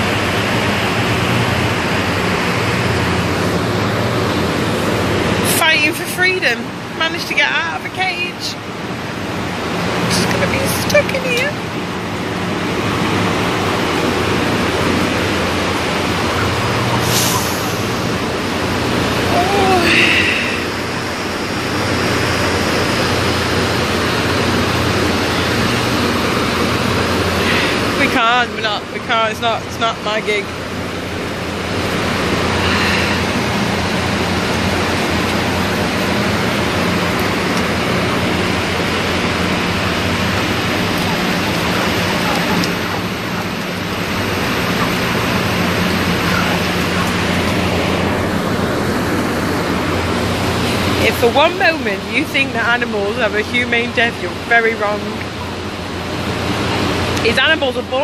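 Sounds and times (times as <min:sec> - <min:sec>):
low motor hum: 0:00.0 - 0:58.0
machinery roaring: 0:00.0 - 0:58.0
rushing hiss: 0:16.9 - 0:18.4.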